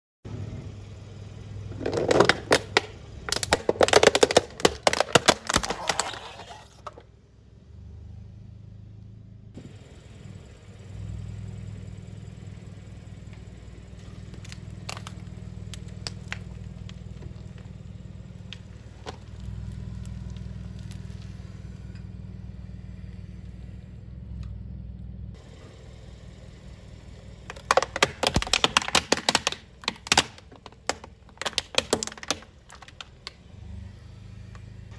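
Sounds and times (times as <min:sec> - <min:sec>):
car engine idling: 0:00.3 - 0:34.9
crackling and crunching: 0:01.7 - 0:07.0, 0:13.3 - 0:22.1, 0:27.3 - 0:33.4
plastic toy crushed by tyre: 0:01.7 - 0:07.0, 0:14.0 - 0:17.8, 0:27.4 - 0:33.4.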